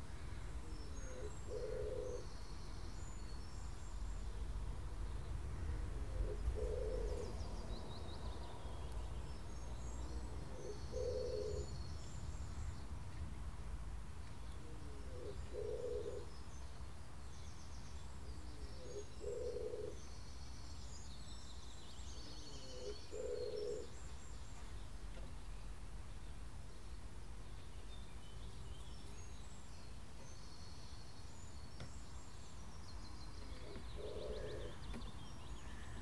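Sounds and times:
small birds chirping: 0:00.0 - 0:36.0
dove cooing: 0:00.6 - 0:02.3, 0:05.7 - 0:07.4, 0:10.1 - 0:11.7, 0:14.6 - 0:16.3, 0:18.5 - 0:20.0, 0:22.5 - 0:23.9, 0:33.4 - 0:34.9.

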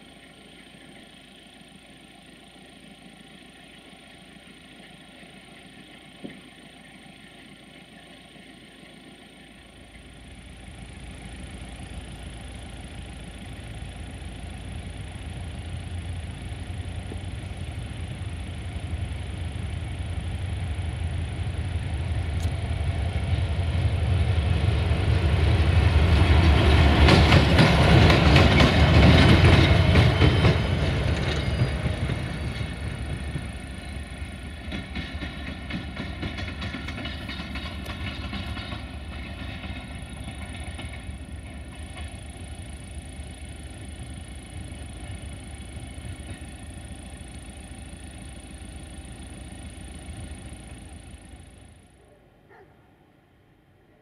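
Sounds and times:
train passing by: 0:00.0 - 0:54.0
wheel clicks over rail joints: 0:34.5 - 0:42.3.

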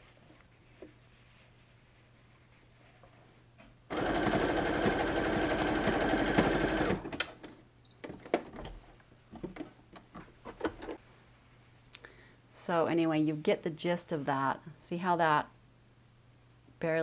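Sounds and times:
sewing machine stitching: 0:03.9 - 0:07.2.

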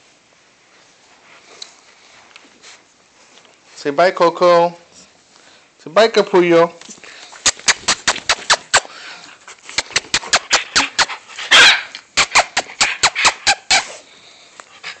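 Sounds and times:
small dogs barking: 0:10.2 - 0:14.0.

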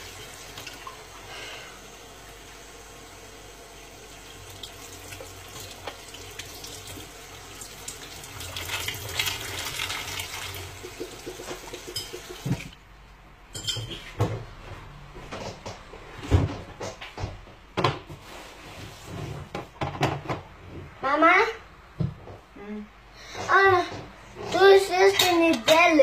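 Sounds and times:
dishes clinking: 0:11.9 - 0:12.3, 0:13.5 - 0:14.3.

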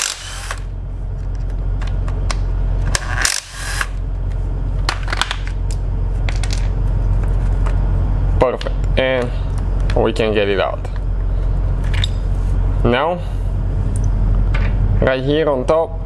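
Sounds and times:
power tool spinning bolts: 0:00.0 - 0:00.7, 0:02.9 - 0:04.0
steady low hum: 0:00.0 - 0:16.0.

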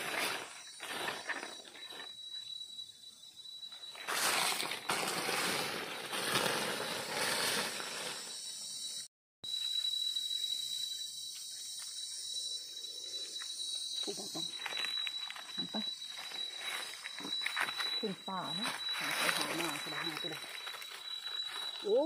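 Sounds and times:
dry leaves rustling and crackling: 0:00.0 - 0:02.1, 0:03.8 - 0:08.4, 0:14.5 - 0:22.0
high-pitched insect drone: 0:00.0 - 0:22.0.

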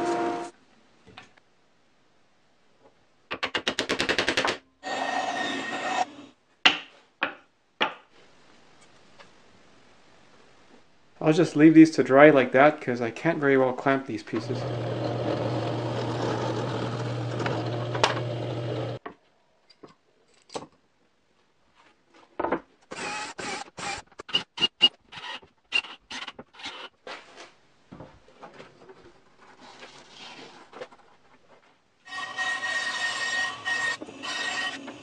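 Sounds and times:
drill press humming: 0:14.4 - 0:19.0.

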